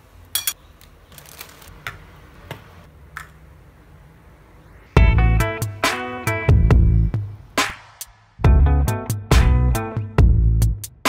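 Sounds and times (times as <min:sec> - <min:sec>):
music with plucked guitar and beat: 0:05.0 - 0:07.2, 0:08.4 - 0:11.0.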